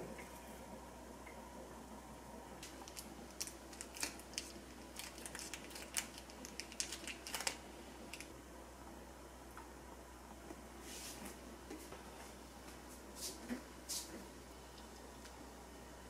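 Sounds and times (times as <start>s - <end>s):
plastic sachet crinkling: 2.6s - 8.3s.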